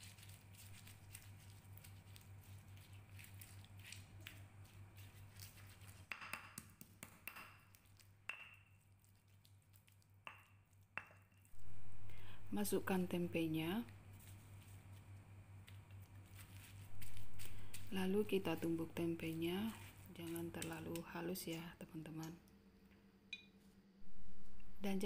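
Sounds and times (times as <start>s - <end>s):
mortar and pestle mashing: 0.0s - 12.1s, 15.6s - 21.6s
low hum: 11.6s - 14.2s, 16.9s - 20.2s, 22.7s - 25.0s.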